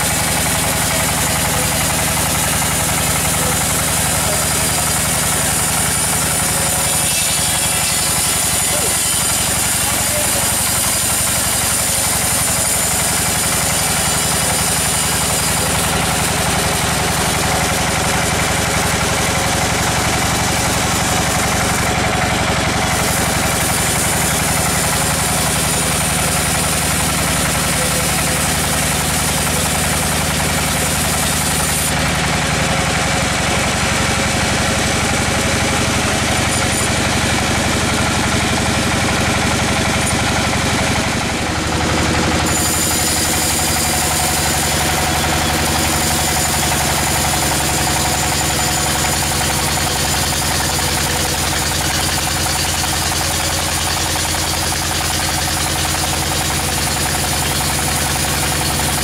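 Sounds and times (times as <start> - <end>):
band saw mechanical drone: 0.0 - 59.0
high hiss of saw cut: 5.5 - 12.8, 42.4 - 44.6.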